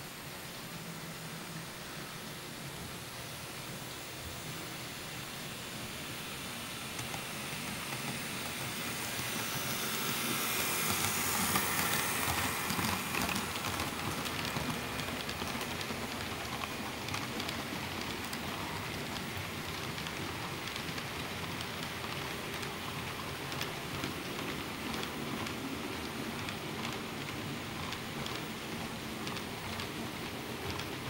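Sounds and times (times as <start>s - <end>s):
model train wheels rattling: 6.9s - 31.0s.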